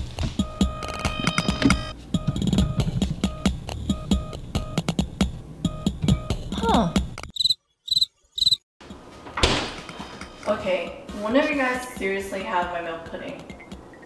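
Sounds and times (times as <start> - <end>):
background music with beat: 0.0 - 7.2, 10.2 - 14.0
cricket chirps: 7.4 - 8.6.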